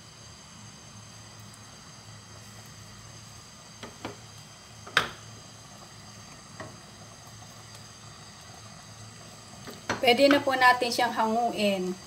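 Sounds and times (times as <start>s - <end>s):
wooden spoon knocking on pan: 3.8s - 4.2s, 4.9s - 5.2s, 9.7s - 10.5s.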